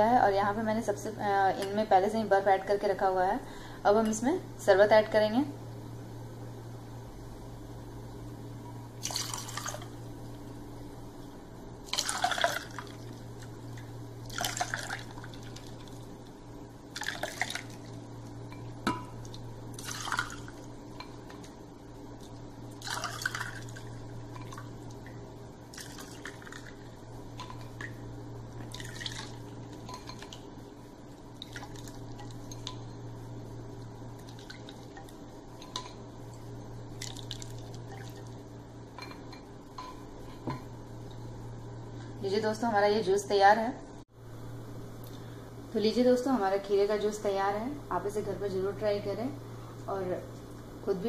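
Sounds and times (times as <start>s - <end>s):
steady low hum: 0.0s - 51.0s
juice splashing into glasses: 9.0s - 10.0s, 11.8s - 13.5s, 14.2s - 16.0s, 16.9s - 18.0s, 18.9s - 20.7s, 22.8s - 25.1s, 25.7s - 26.8s, 28.6s - 30.4s, 36.9s - 38.4s.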